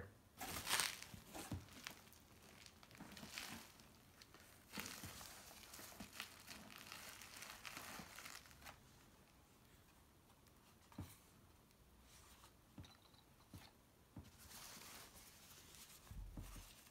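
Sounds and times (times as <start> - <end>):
bubble wrap crinkling: 0.4 - 9.4, 14.3 - 16.9.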